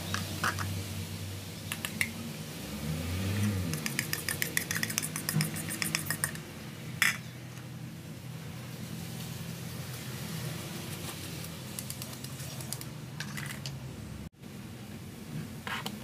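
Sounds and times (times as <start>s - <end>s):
spoon scraping bowl and sieve: 3.4s - 6.4s.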